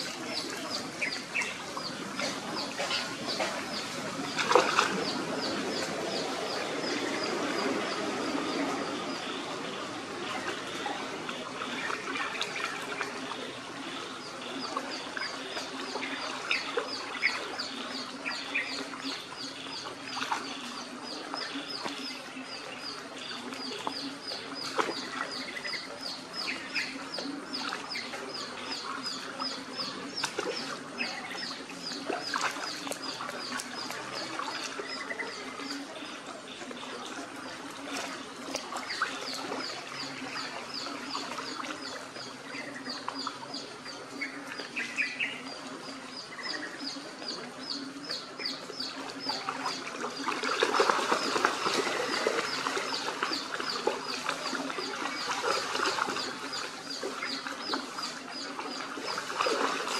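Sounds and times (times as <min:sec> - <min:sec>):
dogs splashing in a puddle: 0:00.0 - 0:09.2, 0:19.7 - 0:45.4, 0:46.1 - 0:59.9.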